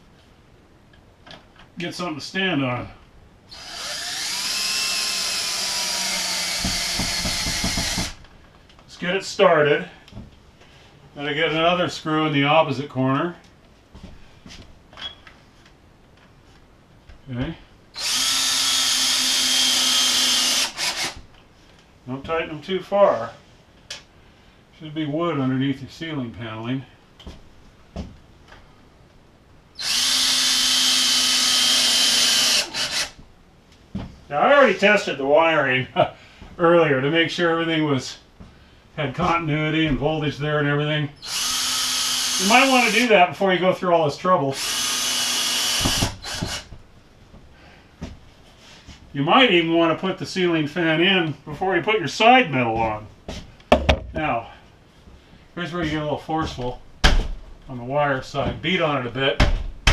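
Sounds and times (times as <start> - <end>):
cordless screw gun whining: 3.5 - 8.2, 18.0 - 21.2, 29.8 - 33.2, 41.2 - 43.1, 44.6 - 46.7
knocks of screw driving: 6.5 - 8.2, 45.7 - 46.8.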